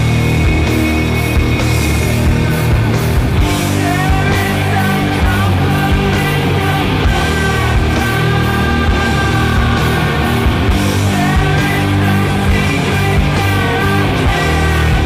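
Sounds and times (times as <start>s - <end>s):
loud rock music: 0.0s - 15.0s.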